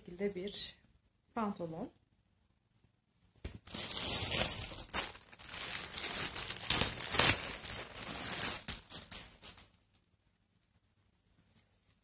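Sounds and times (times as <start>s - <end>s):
plastic bag crinkling: 3.5s - 9.7s.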